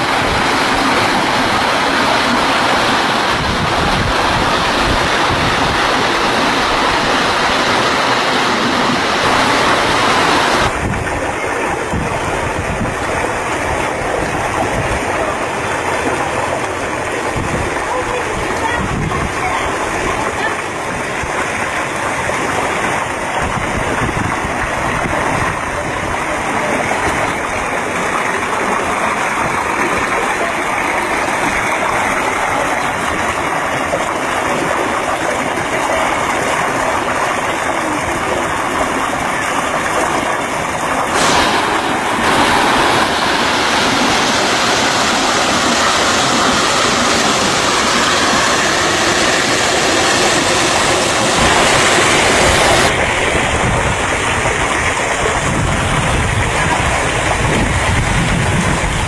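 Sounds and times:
water rushing over rock: 0.0 - 59.0.

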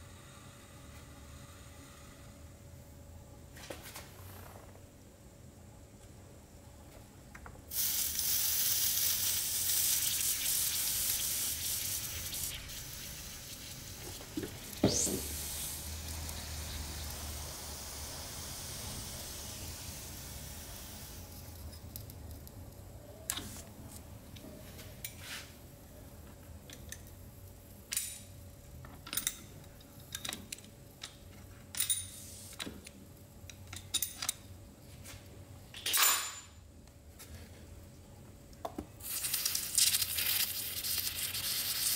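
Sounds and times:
liquid sizzling on hot metal: 7.7 - 21.7, 39.0 - 41.9.

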